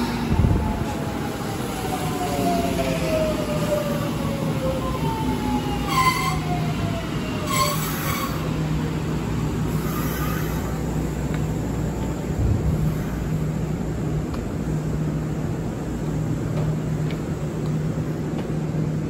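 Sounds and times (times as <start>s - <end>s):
train rolling rumble: 0.0s - 19.0s
train whine falling in pitch: 5.8s - 6.8s
brake squeals: 7.4s - 8.6s, 9.7s - 11.0s.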